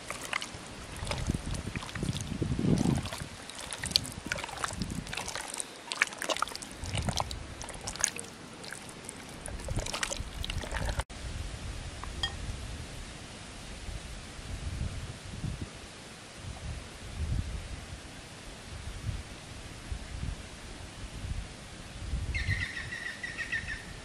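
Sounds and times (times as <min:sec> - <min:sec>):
fish squelching in marinade: 0:00.0 - 0:11.0
breeze and rustling leaves: 0:00.0 - 0:24.0.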